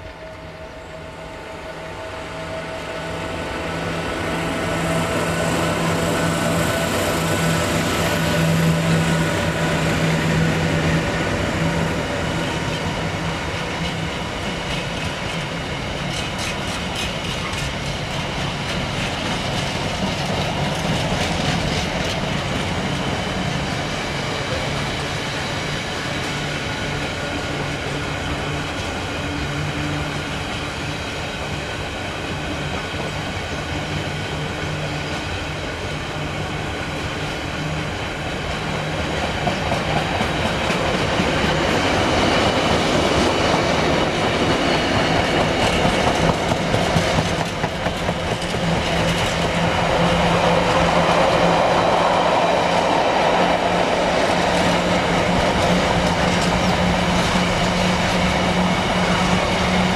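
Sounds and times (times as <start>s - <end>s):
wheels clicking over rail joints: 39.4s - 51.3s.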